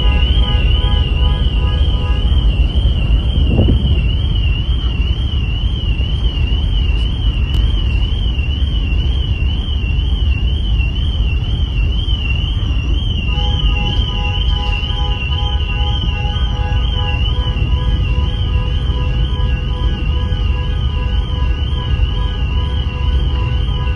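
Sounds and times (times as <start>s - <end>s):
wind buffeting microphone: 0.0s - 7.9s
ship engine and wake: 0.0s - 23.9s.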